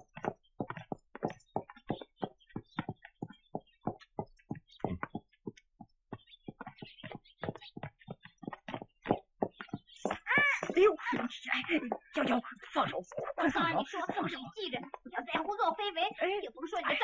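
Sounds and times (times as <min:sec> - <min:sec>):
horse hooves clopping: 0:00.0 - 0:17.0.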